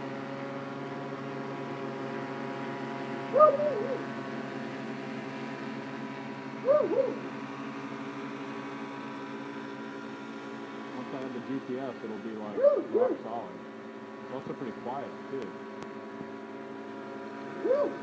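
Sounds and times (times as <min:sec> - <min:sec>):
drone motors humming: 0:00.0 - 0:18.0
rising and falling calls: 0:03.3 - 0:04.2, 0:06.6 - 0:07.3, 0:12.5 - 0:13.3.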